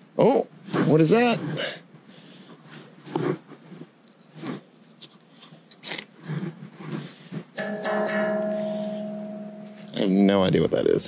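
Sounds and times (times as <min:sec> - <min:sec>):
bell-like ringing tone: 0:07.6 - 0:10.3.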